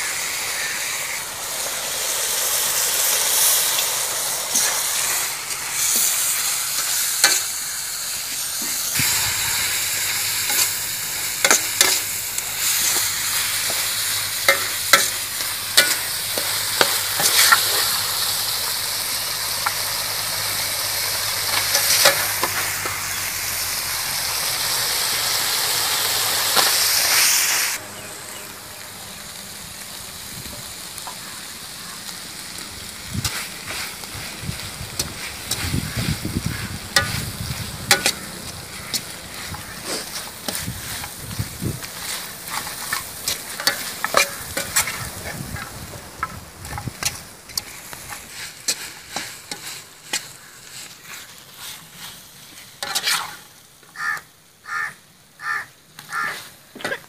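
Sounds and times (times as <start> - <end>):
food sizzling in a wok: 0.0 - 57.0
metal spatula scraping a wok: 1.7 - 18.8, 19.4 - 23.6, 33.0 - 53.5.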